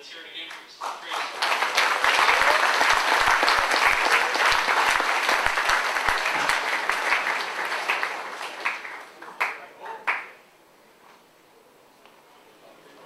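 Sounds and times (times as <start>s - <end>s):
audience applauding: 0.5s - 10.4s.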